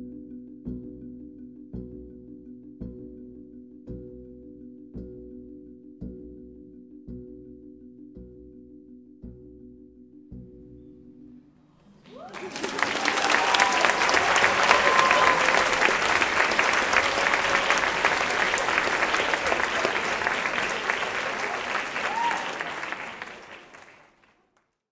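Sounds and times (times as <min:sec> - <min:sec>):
whoops from audience: 0:12.0 - 0:23.6
audience clapping: 0:12.0 - 0:24.8.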